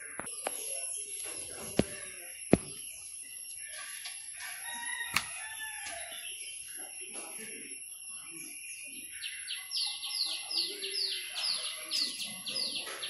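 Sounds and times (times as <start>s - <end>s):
rooster crowing: 4.4s - 6.3s.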